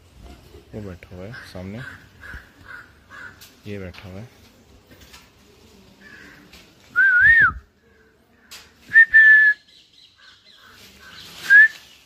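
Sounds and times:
person whistling: 7.0 - 7.6, 8.9 - 9.6, 11.5 - 11.8.

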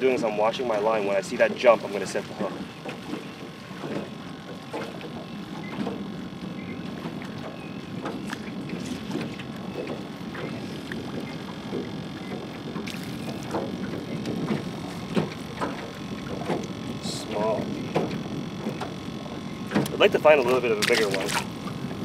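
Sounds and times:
water lapping against boat hull: 0.0 - 22.0
short knocks and clicks: 6.8 - 16.8, 17.9 - 19.0, 19.7 - 20.0.

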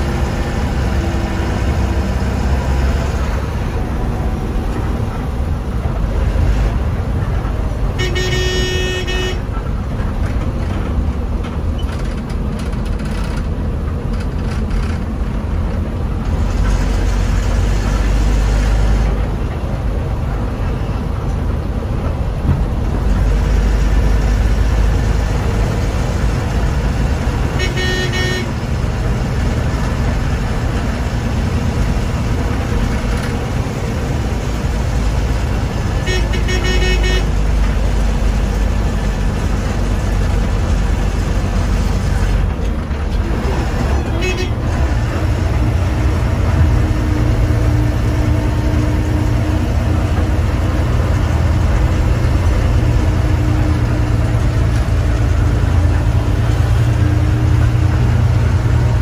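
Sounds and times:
bus engine rumbling: 0.0 - 59.0
bus horn: 7.7 - 9.7, 27.0 - 29.1, 35.8 - 37.9, 43.5 - 49.4.

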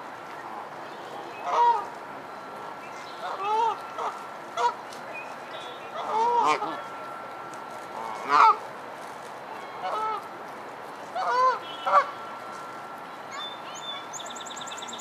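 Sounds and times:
geese honking: 1.4 - 1.9, 3.2 - 4.8, 5.6 - 7.0, 7.8 - 8.7, 9.8 - 10.3, 11.1 - 12.2.

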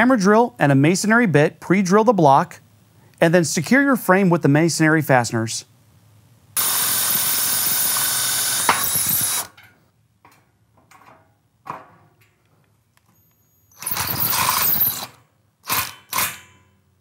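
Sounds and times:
hammer drill boring: 6.6 - 9.5, 13.7 - 16.2
drill driving a screw: 6.6 - 9.6, 13.8 - 16.4.

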